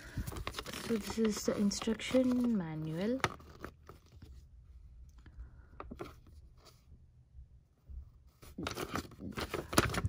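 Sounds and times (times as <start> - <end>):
paper rustling and crinkling: 0.0 - 4.5, 8.2 - 10.0.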